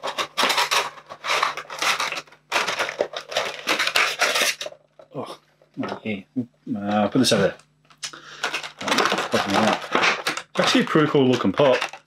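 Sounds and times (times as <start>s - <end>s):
plastic and cardboard packaging crinkling: 0.0s - 5.2s, 8.1s - 12.0s.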